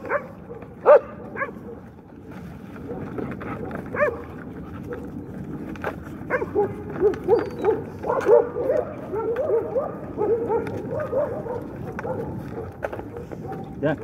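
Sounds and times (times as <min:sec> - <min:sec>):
dogs whining: 0:06.3 - 0:12.3.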